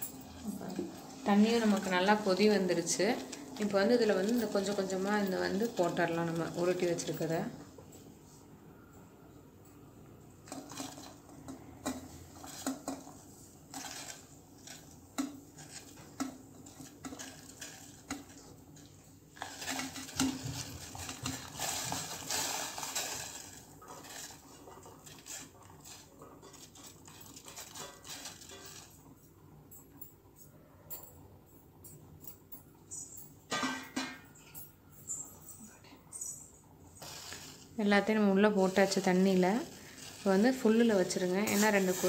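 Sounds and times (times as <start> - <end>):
metal plate clinking against pot: 33.5 - 34.6.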